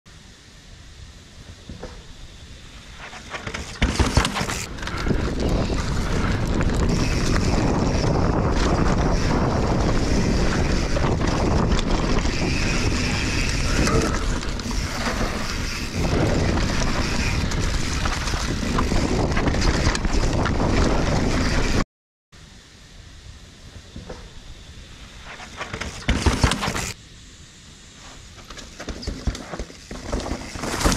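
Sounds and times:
bike rattling and knocking: 3.1s - 21.8s, 25.6s - 27.0s, 28.5s - 30.9s
wind on camera microphone: 3.8s - 21.8s
tyres crunching over dirt and rocks: 28.5s - 30.9s.

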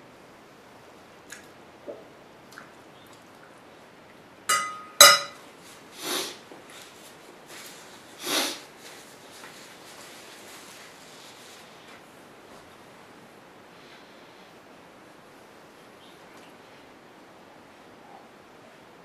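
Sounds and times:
metal fork clinking on plate: 4.5s - 5.4s.

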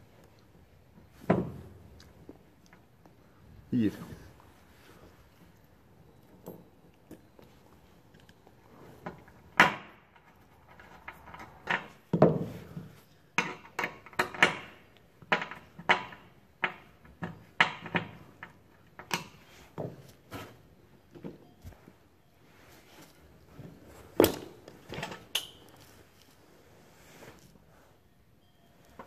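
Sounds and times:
metal hardware knocks and clinks: 6.1s - 7.5s, 9.6s - 20.0s.

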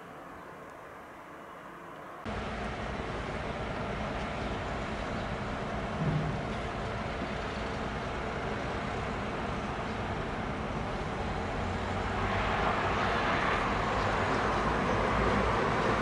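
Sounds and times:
jet airliner approaching: 10.4s - 16.0s.

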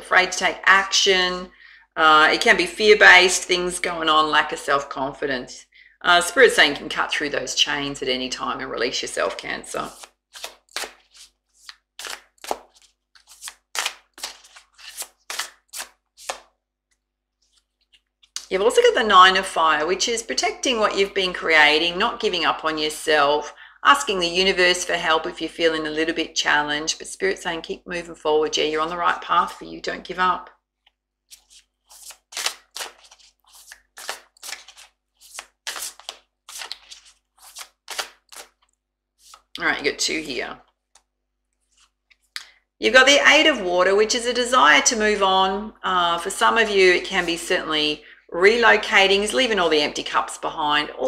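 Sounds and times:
cards being shuffled: 9.8s - 18.4s, 30.8s - 39.5s, 40.9s - 42.4s.

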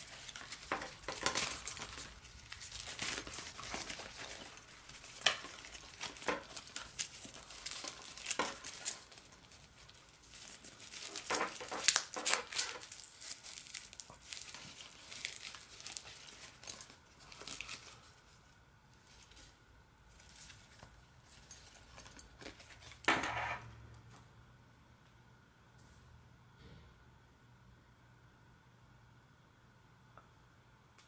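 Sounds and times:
mesh pouch rustling: 0.0s - 18.4s.

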